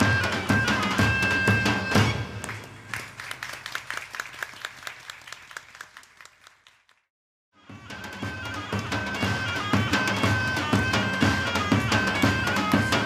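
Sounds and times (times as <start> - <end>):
folk music with horn and drum: 0.0 - 2.8, 7.6 - 13.0
crowd clapping: 2.3 - 7.1.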